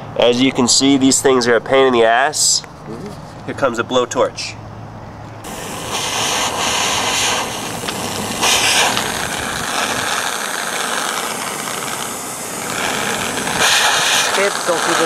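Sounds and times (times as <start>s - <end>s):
gas blowtorch hissing: 5.4s - 15.0s.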